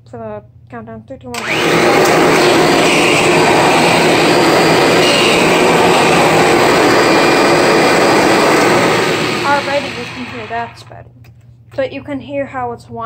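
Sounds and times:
vacuum cleaner running: 1.4s - 10.9s.

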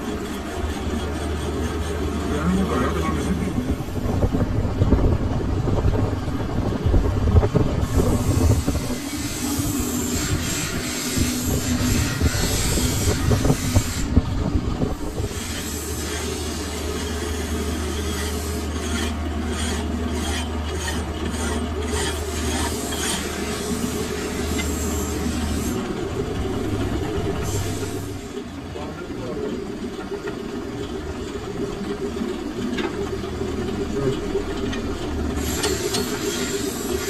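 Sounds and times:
file rasping on steel: 0.0s - 3.7s, 7.8s - 14.2s, 15.2s - 26.0s, 35.3s - 37.0s
metal lathe humming: 0.0s - 28.8s, 29.4s - 37.0s.

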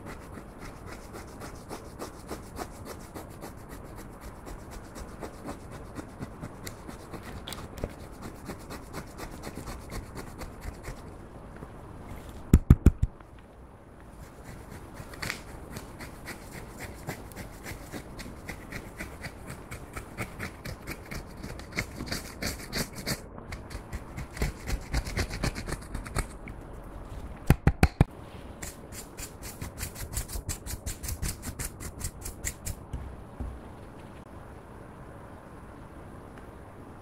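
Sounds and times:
spatula scraping eyeshadow powder: 0.0s - 11.1s, 14.2s - 26.3s, 28.6s - 32.7s.

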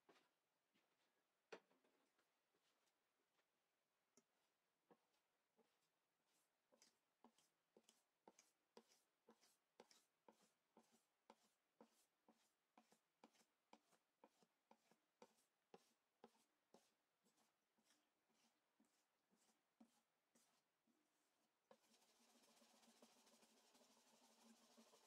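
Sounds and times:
whisk scraping steel bowl: 6.8s - 25.0s.

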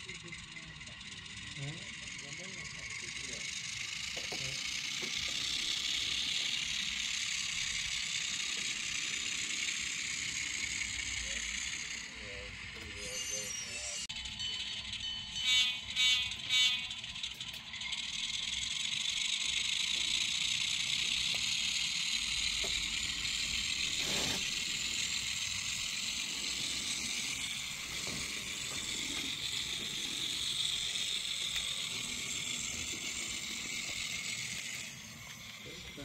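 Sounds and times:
tinny diesel engine running: 0.0s - 36.0s.

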